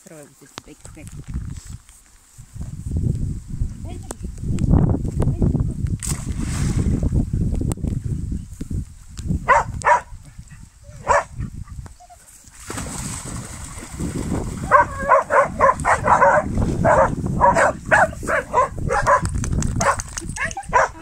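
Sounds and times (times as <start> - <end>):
dog barking: 9.4 - 11.5, 14.7 - 21.0.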